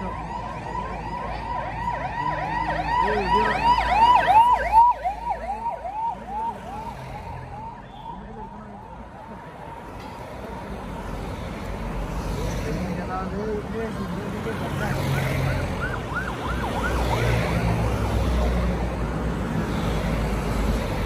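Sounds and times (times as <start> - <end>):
police siren yelp: 0.0 - 8.9, 15.5 - 17.6.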